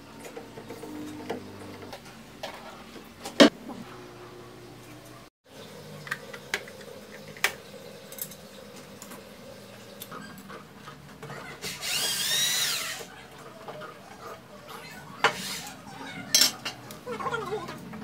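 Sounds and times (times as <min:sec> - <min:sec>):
electric drill whine: 0:11.7 - 0:13.1.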